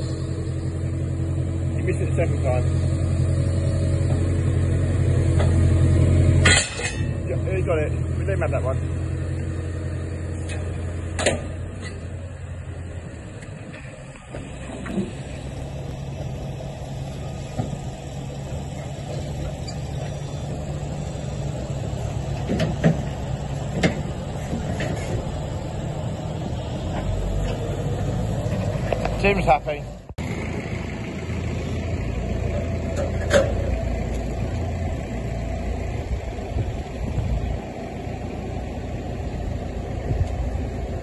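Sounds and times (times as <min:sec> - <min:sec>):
diesel engine running: 0:00.0 - 0:41.0
metal clanks: 0:06.4 - 0:07.4, 0:10.4 - 0:12.2, 0:22.0 - 0:25.4, 0:32.5 - 0:34.2.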